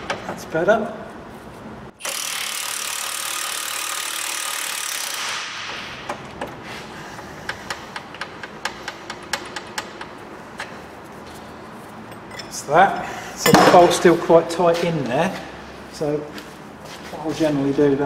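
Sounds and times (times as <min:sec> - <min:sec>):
impact wrench rattling: 0:02.0 - 0:10.8.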